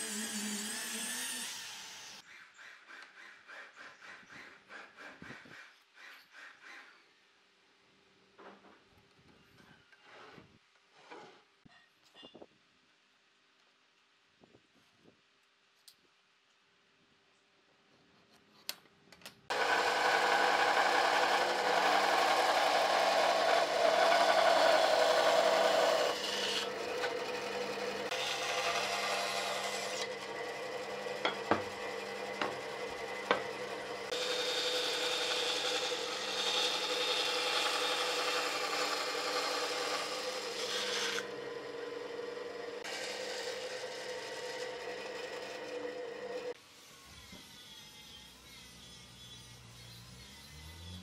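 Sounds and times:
blade cutting wood: 0:00.0 - 0:02.2, 0:19.5 - 0:51.0
bandsaw humming: 0:19.5 - 0:51.0.

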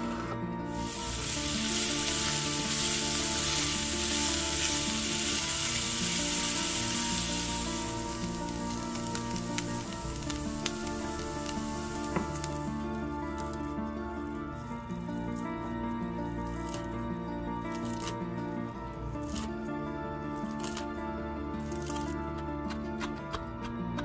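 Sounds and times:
onion sizzling in a pan: 0:00.7 - 0:13.8, 0:17.7 - 0:18.2, 0:19.1 - 0:19.6, 0:20.4 - 0:20.8, 0:21.6 - 0:22.1.

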